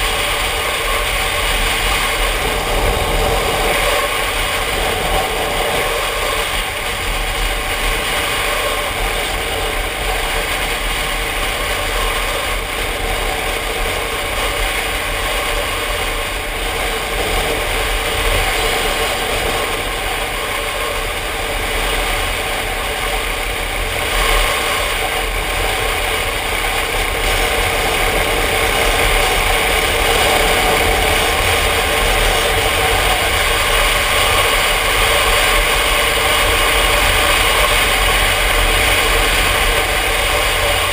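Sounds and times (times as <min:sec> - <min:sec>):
motorcycle engine cruising: 0:00.0 - 0:40.9
wind noise on microphone: 0:00.0 - 0:40.9.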